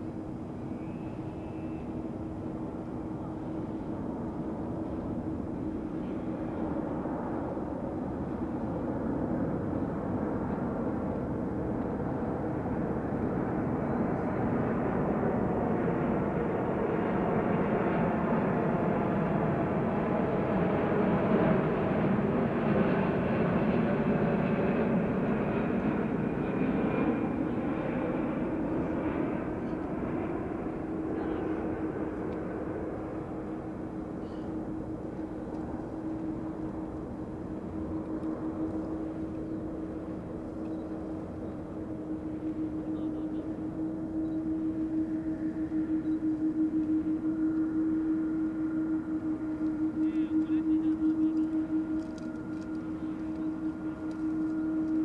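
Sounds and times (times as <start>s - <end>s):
jet engine rumble: 0.0s - 55.0s
thin jet engine whine: 0.0s - 55.0s.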